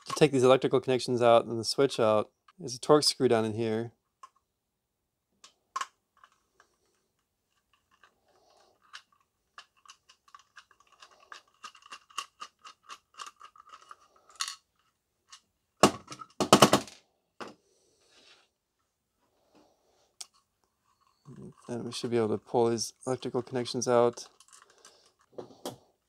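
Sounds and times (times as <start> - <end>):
plastic parts clattering: 5.4 - 17.6, 20.2 - 25.8.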